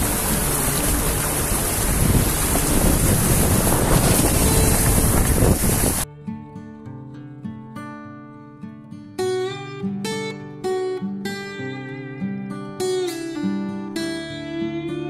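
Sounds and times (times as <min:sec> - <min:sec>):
water sloshing around car: 0:00.0 - 0:06.0
wind noise on microphone: 0:00.0 - 0:06.1
acoustic guitar music: 0:00.0 - 0:15.0.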